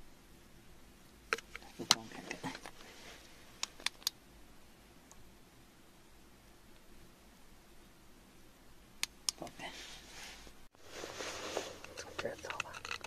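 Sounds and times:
sharp clicks: 3.6 - 4.2.

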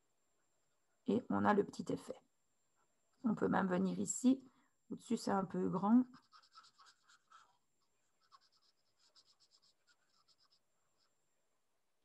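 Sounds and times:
marker rubbing on paper: 6.0 - 7.6, 8.2 - 11.1.

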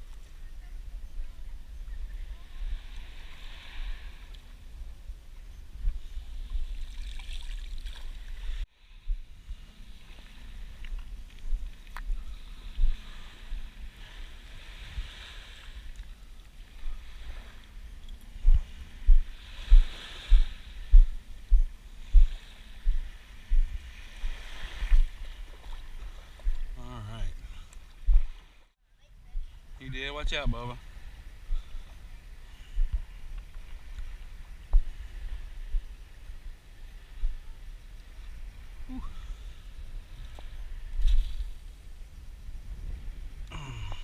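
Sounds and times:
wind on microphone: 0.0 - 44.0
regular low thumps: 18.4 - 24.3.

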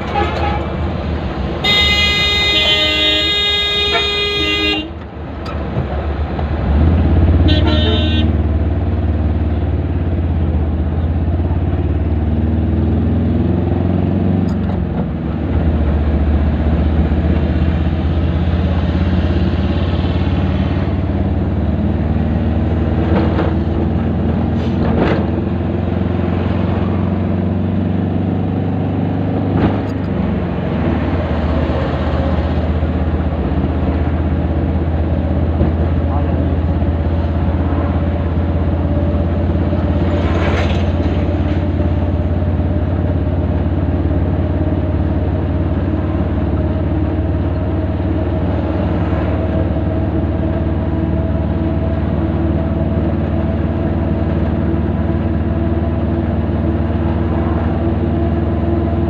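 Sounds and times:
vehicle horn: 0.0 - 0.8, 1.6 - 5.0, 7.4 - 8.4
vehicle engine rumbling in traffic: 0.0 - 59.0.

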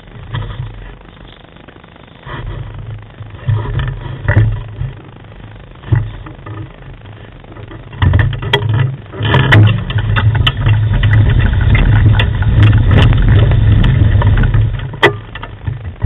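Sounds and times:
rig rolling over gravel: 0.0 - 16.0
stones and gear rattling: 7.6 - 16.0.

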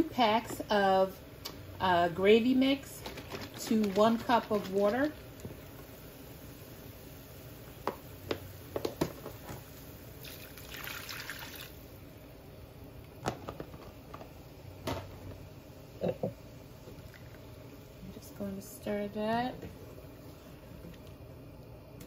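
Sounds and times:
liquid pouring and splashing in pan: 2.9 - 12.2.

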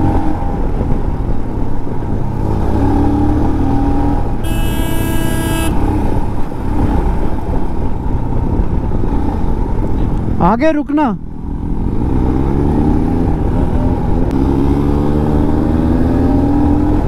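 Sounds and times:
wind and road noise: 0.0 - 17.0
vehicle horn: 4.4 - 6.2
motorcycle engine running: 4.4 - 6.6.

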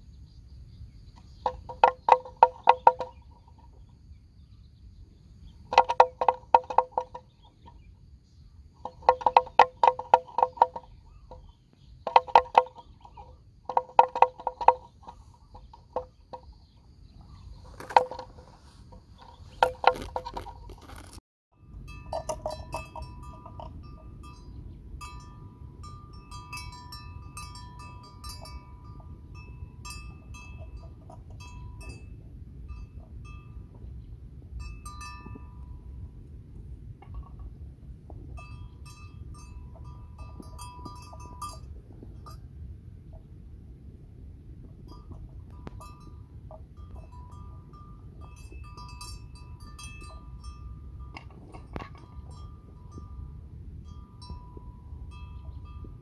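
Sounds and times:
livestock bells clanking: 1.4 - 3.9, 5.6 - 7.8, 8.8 - 20.3, 21.6 - 36.2, 37.0 - 42.6, 44.8 - 56.0
wind rumble on microphone: 14.3 - 56.0.

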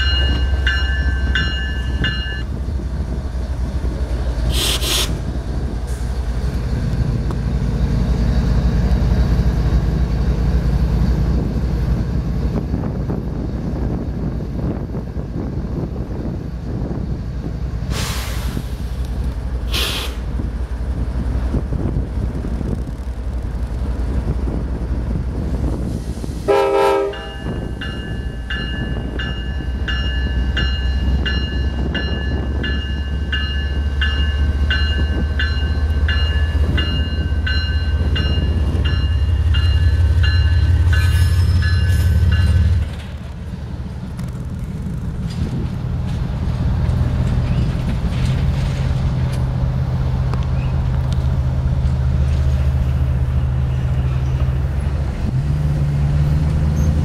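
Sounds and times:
grade-crossing bell ringing: 0.0 - 2.6, 27.0 - 42.9
diesel locomotive engine drone: 0.0 - 57.0
train horn toot: 4.5 - 5.2, 26.5 - 27.6.

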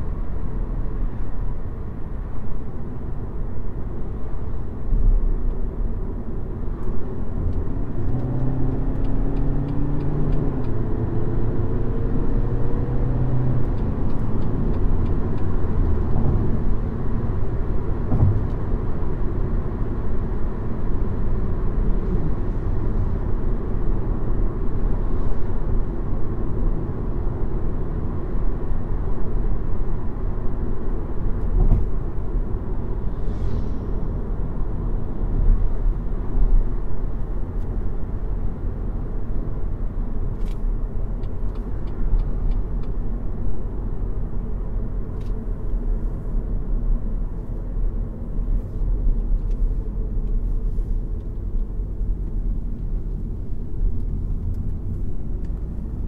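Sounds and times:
road noise: 0.0 - 56.0
car engine accelerating: 7.2 - 17.0.

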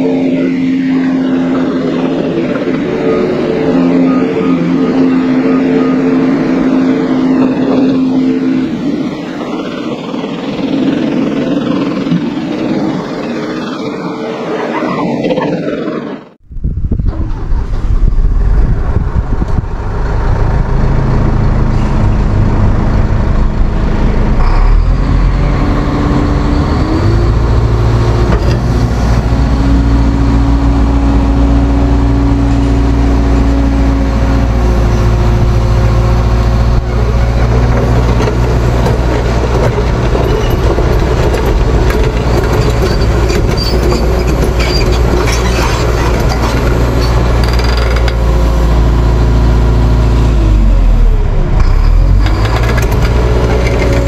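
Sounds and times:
heavy diesel engine running: 0.0 - 14.8, 17.3 - 54.0.

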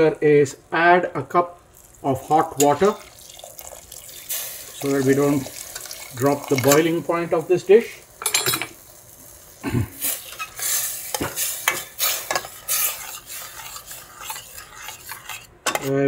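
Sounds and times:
liquid bubbling and sizzling: 0.0 - 16.0
metal ladle scraping pot: 10.0 - 16.0.

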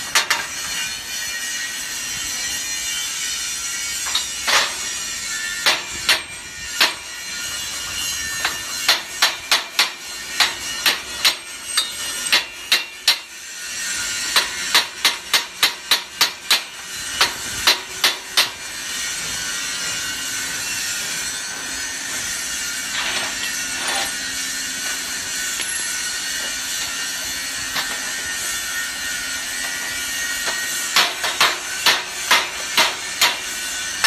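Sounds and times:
hammer striking metal: 5.6 - 7.0, 8.4 - 13.3, 14.3 - 18.6, 29.7 - 33.6.

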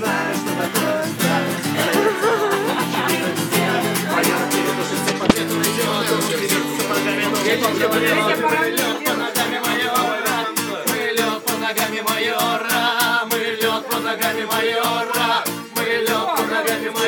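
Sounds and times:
acoustic guitar strumming: 4.8 - 6.8
sharp knock: 5.1 - 5.5.

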